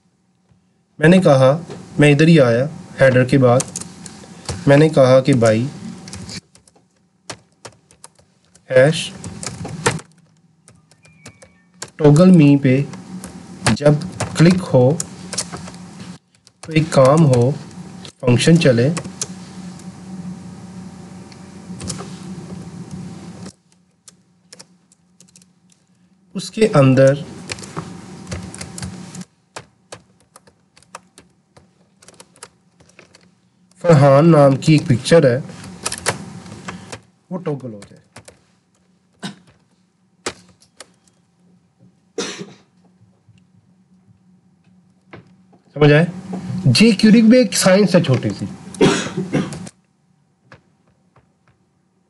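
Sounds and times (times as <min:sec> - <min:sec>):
steady low hum and hiss: 0:00.0 - 0:52.0
computer keyboard keystrokes: 0:06.1 - 0:08.6, 0:09.2 - 0:12.0, 0:23.5 - 0:25.8, 0:27.1 - 0:33.3, 0:35.8 - 0:36.2, 0:37.8 - 0:38.4.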